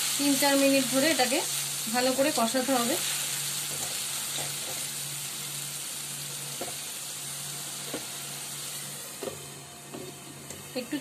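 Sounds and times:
paste sizzling in oil: 0.0 - 11.0.

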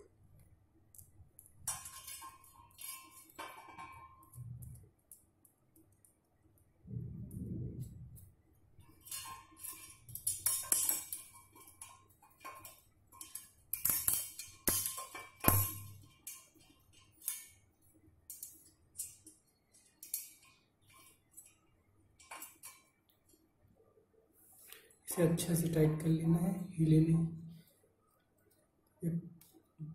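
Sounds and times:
small metal parts clinking: 9.0 - 17.6.

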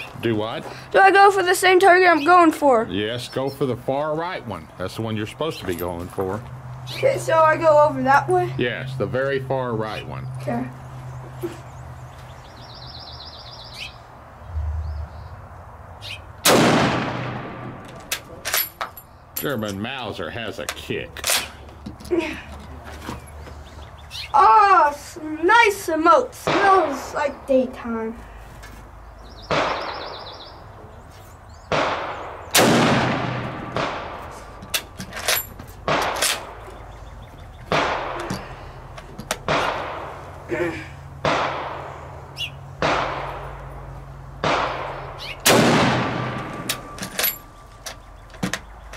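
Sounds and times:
bird chirping: 1.8 - 4.9, 9.8 - 16.4, 23.0 - 24.5, 28.9 - 32.5, 36.4 - 37.8, 41.9 - 42.8, 45.0 - 45.4, 46.8 - 48.9
rifle shot with echo: 16.4 - 17.8, 29.5 - 30.2, 31.7 - 34.3, 37.7 - 38.2, 41.2 - 41.9, 42.8 - 43.6, 44.4 - 46.9.

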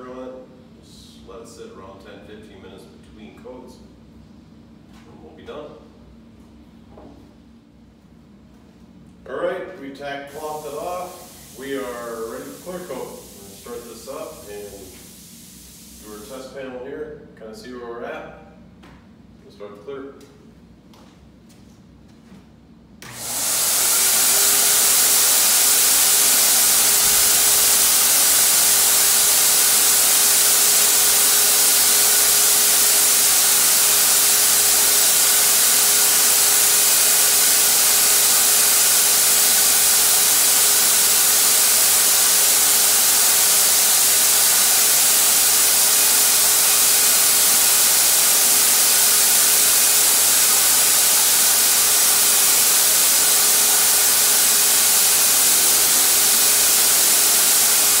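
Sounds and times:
turbine sprayer rushing air: 10.3 - 16.4, 23.0 - 58.0.

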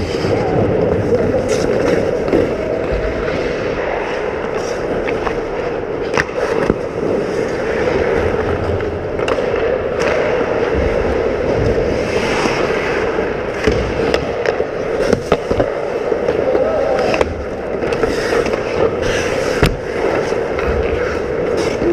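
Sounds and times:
hockey sticks and puck clacking: 0.0 - 21.9
skate blades scraping ice: 0.0 - 21.9.

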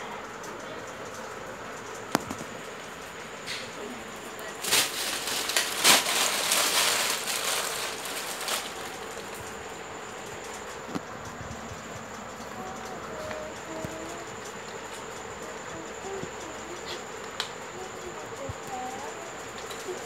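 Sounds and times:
plastic bag crinkling: 4.4 - 9.6.

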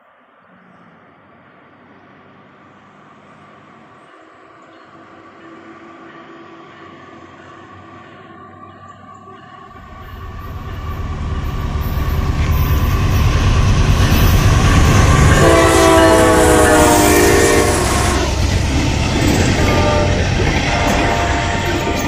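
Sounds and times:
diesel locomotive engine rumble: 0.0 - 22.0
train clatter: 3.9 - 22.0
locomotive air horn blast: 14.4 - 18.5, 19.5 - 22.0.

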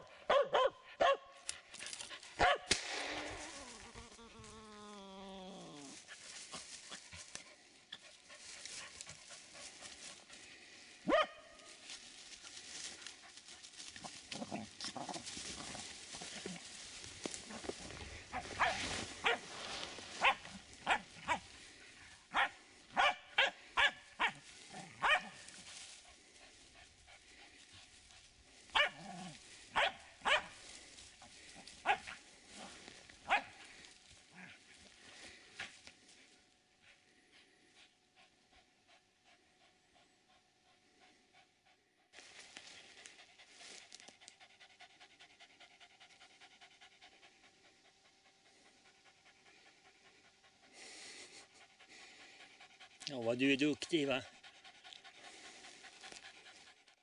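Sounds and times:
dog barking sharply: 0.3 - 1.2, 2.4 - 2.7.

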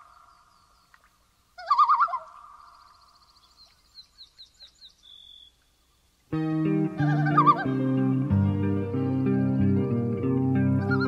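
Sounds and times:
loud wavering bird call: 1.6 - 3.3, 6.6 - 8.3, 10.7 - 11.0
small bird chirps and trill: 1.6 - 5.7.

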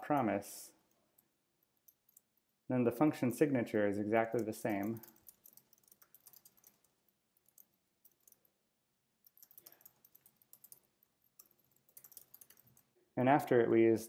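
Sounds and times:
keyboard typing: 4.2 - 8.5, 9.2 - 13.0.

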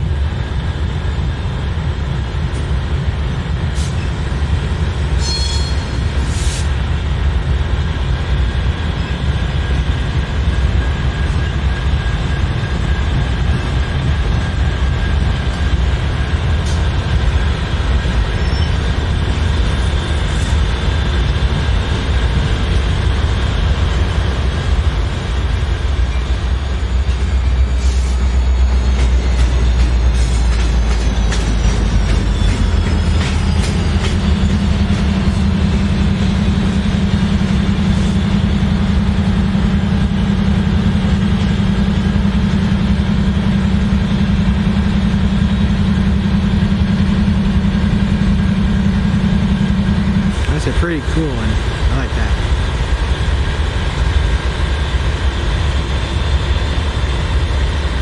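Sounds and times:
locomotive engines rumbling: 0.0 - 58.0
high wheel squeals: 5.2 - 6.6, 18.2 - 20.6, 31.2 - 34.9.

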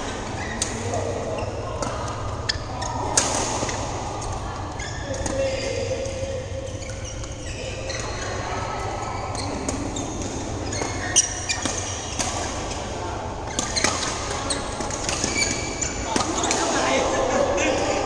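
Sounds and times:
court shoes squeaking: 0.0 - 18.0
hum of voices: 14.1 - 18.0.

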